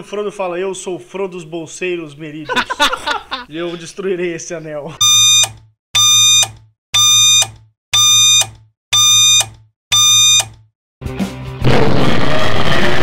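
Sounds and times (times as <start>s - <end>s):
buzzy electronic countdown beeps: 5.0s - 10.5s
burst of noise: 11.6s - 13.0s.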